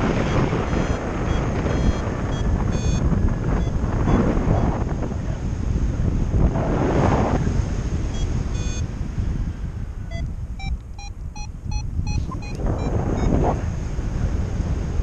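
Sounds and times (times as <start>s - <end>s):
variometer beeping: 0.0s - 4.8s, 8.1s - 8.9s, 10.1s - 13.5s
wind buffeting microphone: 0.0s - 15.0s.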